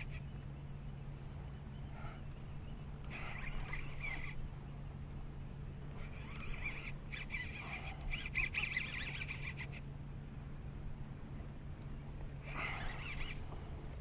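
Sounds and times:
fishing reel drag buzzing: 0:00.0 - 0:01.0, 0:01.9 - 0:09.9, 0:12.4 - 0:14.0.

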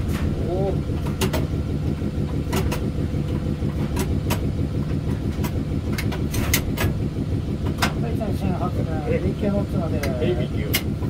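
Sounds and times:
locomotive machinery humming: 0:00.0 - 0:11.0
control handle clicks and knocks: 0:01.0 - 0:07.0, 0:10.0 - 0:11.0.

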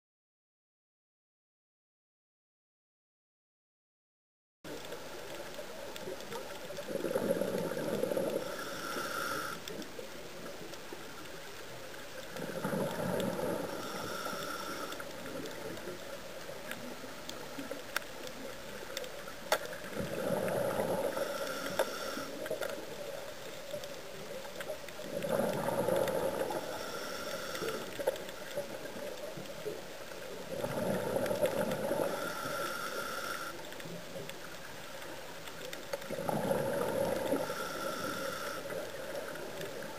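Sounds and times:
exhaled air bubbling underwater: 0:04.7 - 0:39.9
steady faint hiss: 0:04.7 - 0:39.9
regulator hiss: 0:08.3 - 0:09.7, 0:13.5 - 0:15.1, 0:20.9 - 0:22.5, 0:26.2 - 0:28.0, 0:31.9 - 0:33.9, 0:37.2 - 0:39.4.

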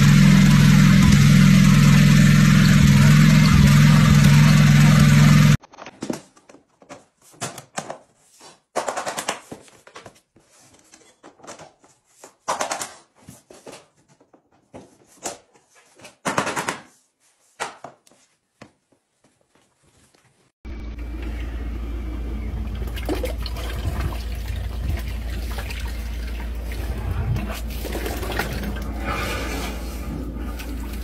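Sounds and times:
flooring planks tapped and clicked: 0:05.7 - 0:10.4, 0:11.2 - 0:17.0.

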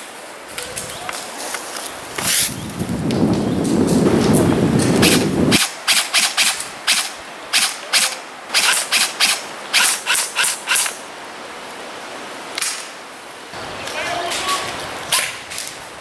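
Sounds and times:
low rumble on microphone: 0:02.0 - 0:05.5
airsoft rifle shots: 0:05.0 - 0:10.9.

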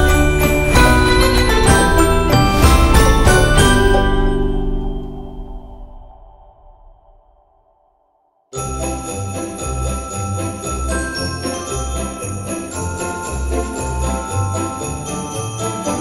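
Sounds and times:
tinkling sleigh chimes: 0:00.0 - 0:05.6, 0:08.6 - 0:16.0
bass line: 0:00.0 - 0:06.2.

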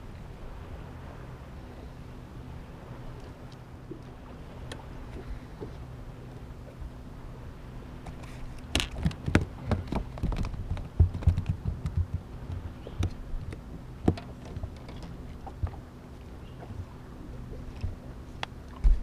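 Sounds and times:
steady low hum: 0:00.0 - 0:19.0
clicks and knocks of fishing tackle: 0:08.0 - 0:15.8.

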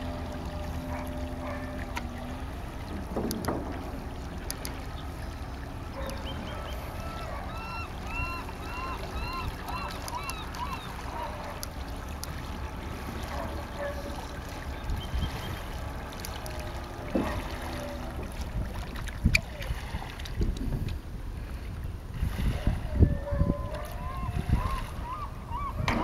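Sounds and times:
faint bird calls: 0:04.8 - 0:11.7, 0:23.5 - 0:26.0
wind rumbling on microphone: 0:14.7 - 0:16.0, 0:18.1 - 0:26.0.

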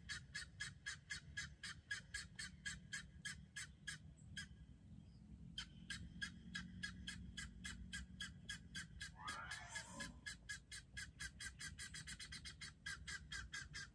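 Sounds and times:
guineafowl calling: 0:00.0 - 0:04.7, 0:05.5 - 0:13.9.

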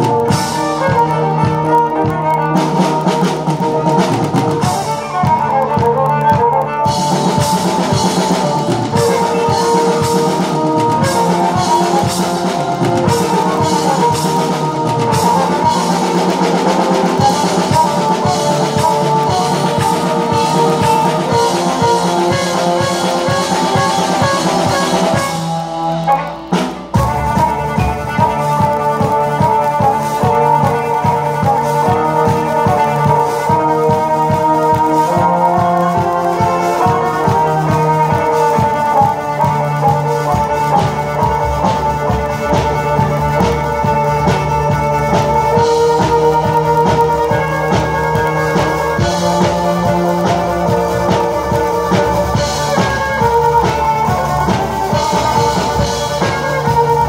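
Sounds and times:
drum kit beat: 0:00.0 - 0:57.0
held keyboard notes: 0:00.0 - 0:57.0.

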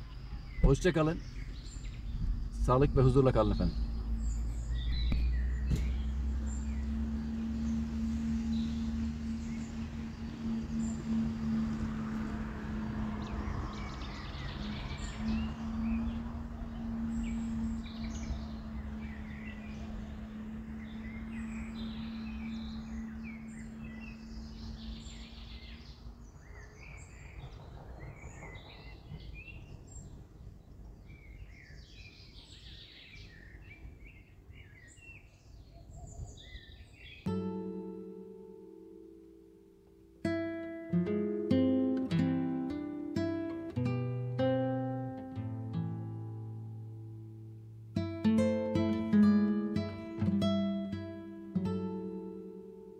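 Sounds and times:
low outdoor rumble: 0:00.0 - 0:31.6
birds chirping and calling: 0:00.0 - 0:37.3
steady low hum: 0:01.2 - 0:26.4.

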